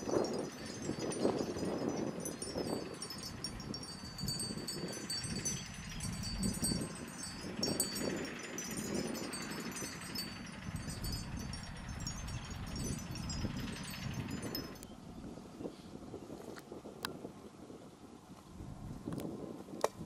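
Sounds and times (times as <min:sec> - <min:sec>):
small bells tinkling: 0:00.0 - 0:14.9.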